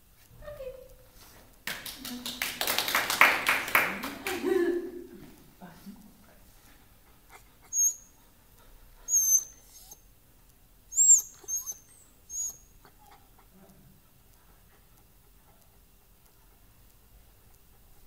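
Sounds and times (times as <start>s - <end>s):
dog whining: 7.3s - 8.2s, 9.0s - 10.1s, 10.9s - 13.5s.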